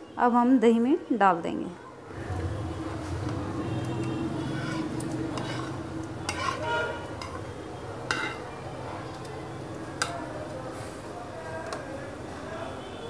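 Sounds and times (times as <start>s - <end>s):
spoon scraping a dish: 3.9s - 8.5s
metal clinks on a dish: 8.1s - 8.4s.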